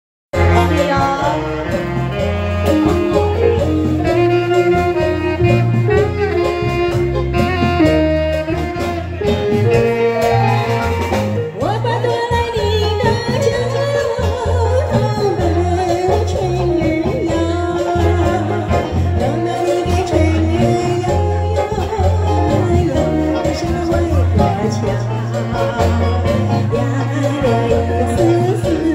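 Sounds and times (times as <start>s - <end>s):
live band playing: 0.3s - 28.9s
woman singing: 0.4s - 1.9s, 11.5s - 28.9s.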